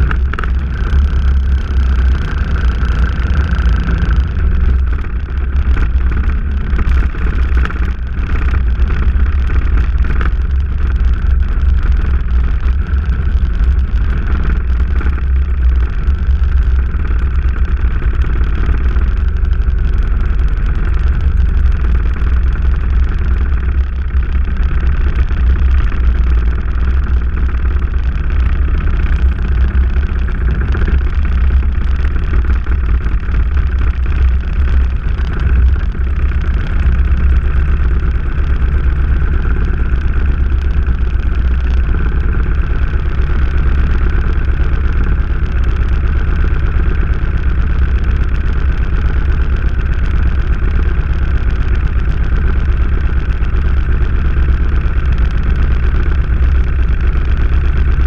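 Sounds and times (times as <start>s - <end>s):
motorcycle engine: 0.0s - 58.0s
wind rumble on microphone: 0.0s - 58.0s.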